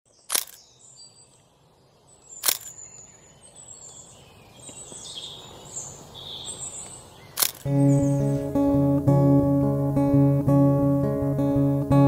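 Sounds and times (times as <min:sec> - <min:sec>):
bird chirps and trills: 0:00.1 - 0:08.9
sharp clicks: 0:00.2 - 0:00.6, 0:02.4 - 0:02.8, 0:07.4 - 0:07.7.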